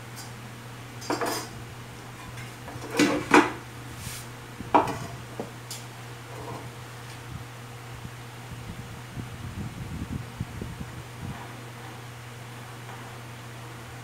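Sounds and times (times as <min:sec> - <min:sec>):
steady low hum: 0:00.0 - 0:14.0
objects knocking on speaker cabinet: 0:04.7 - 0:05.6.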